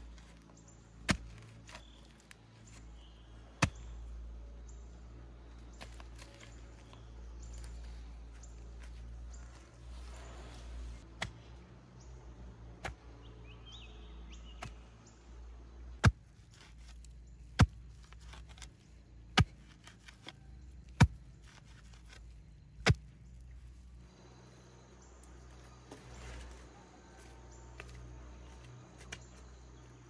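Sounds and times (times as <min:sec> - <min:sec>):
wooden pole thudding into soil: 0:01.0 - 0:02.3, 0:27.2 - 0:29.4.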